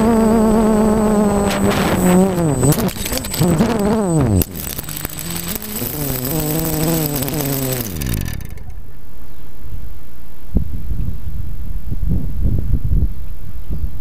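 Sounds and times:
wind noise on microphone: 0.0s - 8.7s, 9.7s - 14.0s
drone motors whining: 0.0s - 9.0s.

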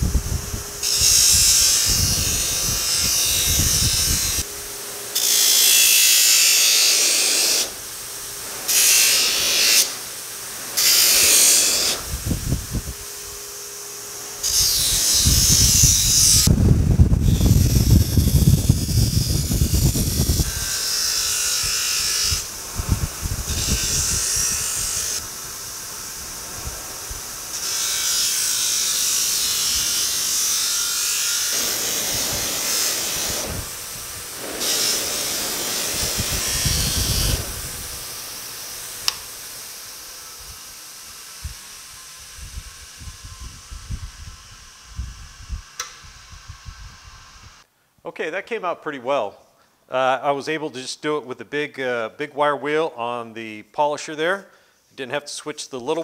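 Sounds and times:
polisher motor hum: 17.2s - 47.6s.

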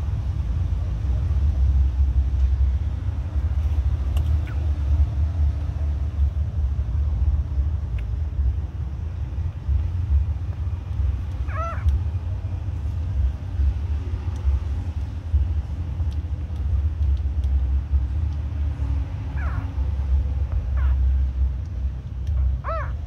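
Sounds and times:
steady low rumble: 0.0s - 23.0s
puppies squeaking: 11.4s - 12.0s, 19.2s - 19.8s, 20.6s - 21.1s, 22.4s - 23.0s.

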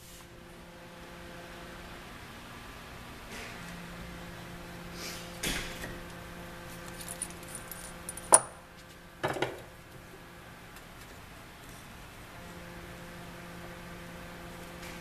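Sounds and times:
small metal clinks and knocks: 6.7s - 8.6s.

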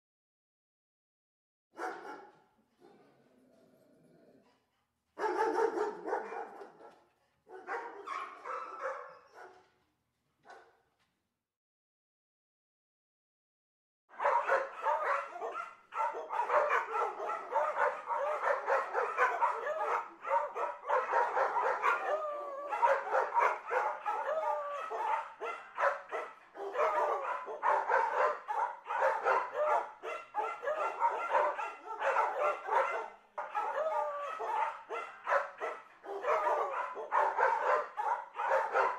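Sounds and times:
dogs barking and yipping: 1.8s - 2.4s, 5.2s - 9.7s, 14.1s - 38.9s.

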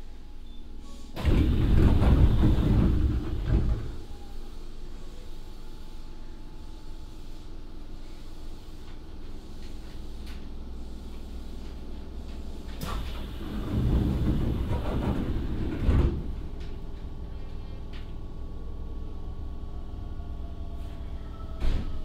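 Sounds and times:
train car hum: 0.0s - 22.0s
train doors sliding shut: 0.8s - 4.4s, 12.7s - 16.8s
doors shutting thud: 1.2s - 4.0s, 21.6s - 22.0s.

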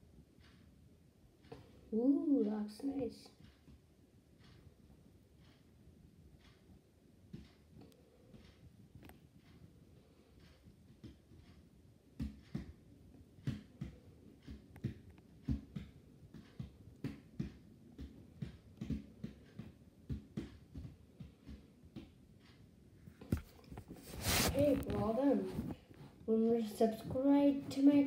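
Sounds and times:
faint room hum: 0.0s - 28.0s
soft thumps and taps: 13.4s - 22.6s, 23.2s - 26.1s.

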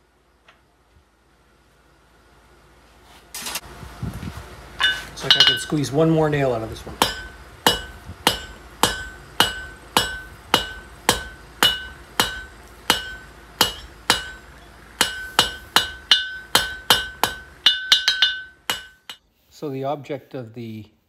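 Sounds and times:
hammer striking steel on anvil: 4.8s - 5.8s, 6.9s - 19.2s.

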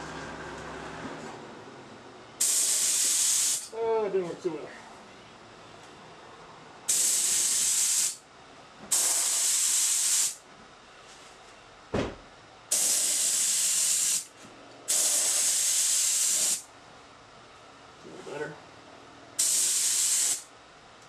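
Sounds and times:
spray gun hissing: 2.4s - 3.7s, 6.9s - 8.2s, 8.9s - 10.4s, 12.7s - 14.3s, 14.9s - 16.6s, 19.4s - 20.5s
brief thump: 11.9s - 12.2s.

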